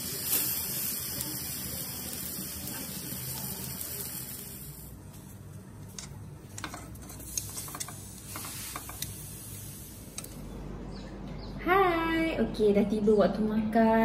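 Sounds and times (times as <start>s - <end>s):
metal tongs clicking on frying pan: 5.9s - 9.2s.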